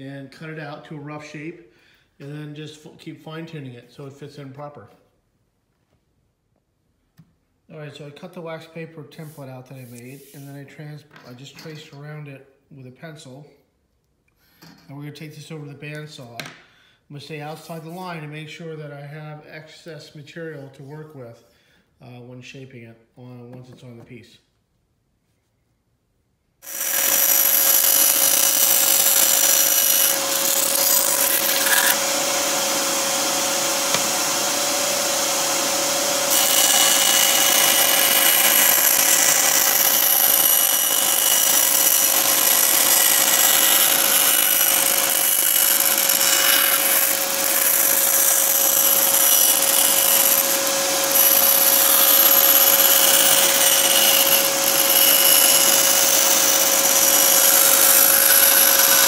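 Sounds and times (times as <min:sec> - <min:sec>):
bandsaw motor whine: 0:26.6 - 0:59.0
saw blade cutting plywood: 0:26.6 - 0:59.0.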